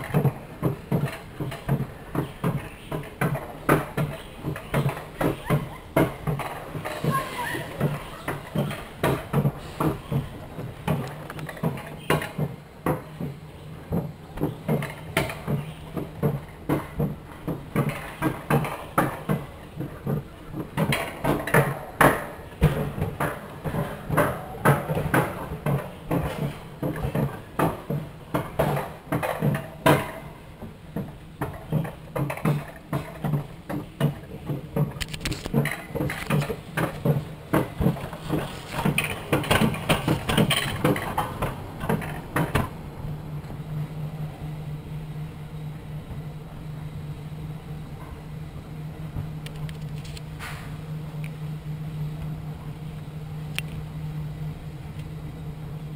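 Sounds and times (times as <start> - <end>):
track clacks and knocks: 0.0 - 43.6
wheels rolling on steel rails: 0.0 - 55.9.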